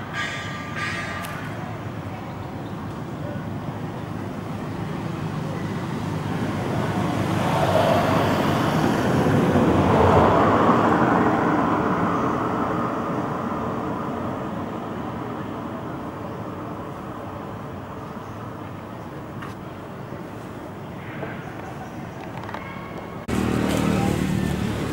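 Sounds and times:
road vehicle passing by: 0:00.0 - 0:15.9, 0:23.2 - 0:24.9.

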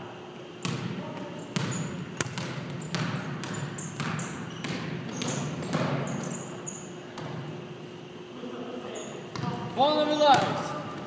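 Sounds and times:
basketball bouncing on hardwood floor: 0:01.6 - 0:06.4.

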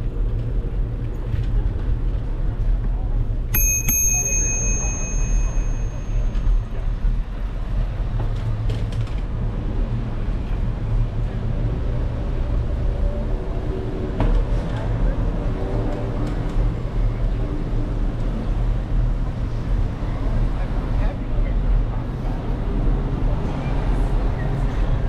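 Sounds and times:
wind and road noise rumble: 0:00.0 - 0:03.6, 0:04.8 - 0:25.0
bicycle bell ringing: 0:03.6 - 0:06.9.

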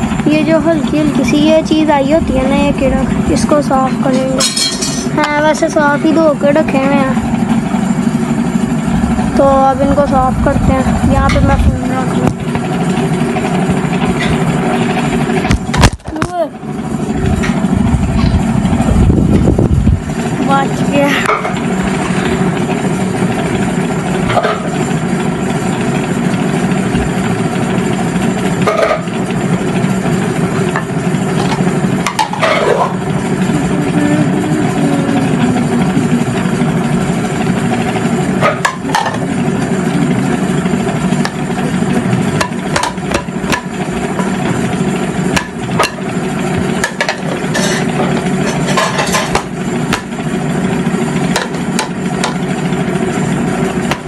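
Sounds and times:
electric fan humming: 0:00.0 - 0:54.0
utensils knocking and clinking: 0:03.7 - 0:05.7, 0:41.2 - 0:44.7, 0:45.3 - 0:50.2.

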